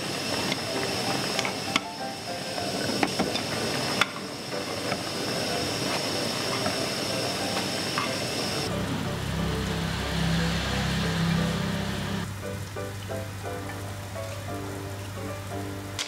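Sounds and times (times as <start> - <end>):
water boiling in a pot: 0.0 - 16.0.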